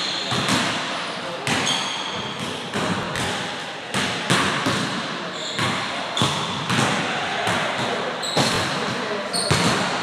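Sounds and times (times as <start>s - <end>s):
basketballs bouncing on hardwood: 0.3s - 0.8s, 5.6s - 6.9s, 7.5s - 9.9s.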